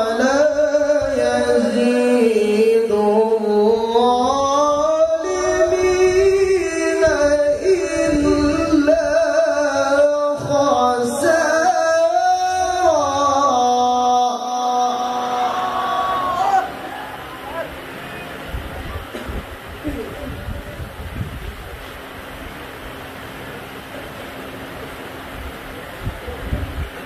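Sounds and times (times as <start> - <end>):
man chanting over a pa system: 0.0 - 17.9.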